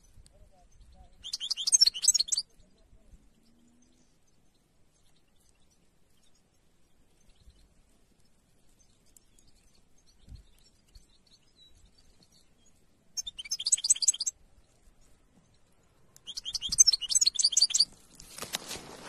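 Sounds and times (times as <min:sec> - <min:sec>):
finch twittering song: 0:00.1 - 0:14.8, 0:15.4 - 0:18.0
rough rustling noise: 0:17.7 - 0:19.0.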